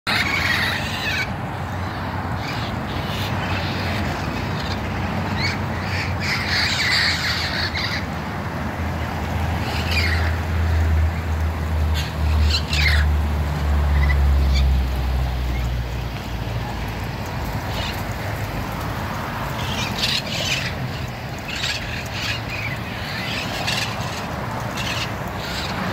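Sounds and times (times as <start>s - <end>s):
parrots squawking: 0.1s - 8.1s, 9.6s - 10.4s, 11.9s - 13.1s, 19.6s - 25.9s.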